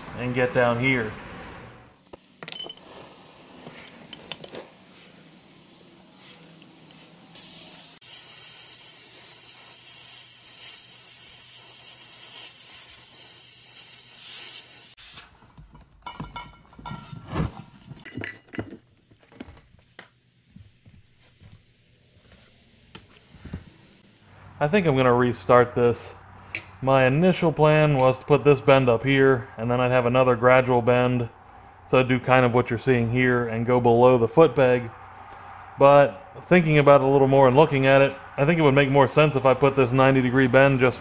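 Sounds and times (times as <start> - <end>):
torch flame hissing: 2.8 - 15.3.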